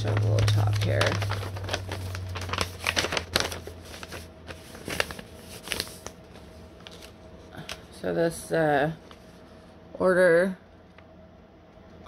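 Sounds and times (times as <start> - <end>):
paper rustling and crinkling: 0.0 - 7.9, 9.0 - 9.5.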